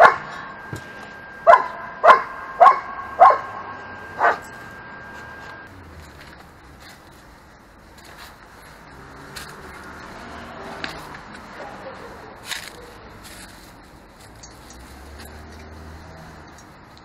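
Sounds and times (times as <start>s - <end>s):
dog barking: 0.0s - 0.3s, 1.4s - 4.5s.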